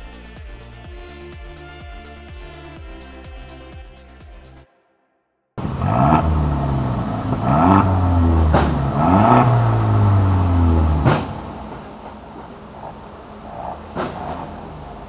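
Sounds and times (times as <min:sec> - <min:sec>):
car engine idling: 0:05.6 - 0:15.0
car engine revving: 0:05.6 - 0:15.0.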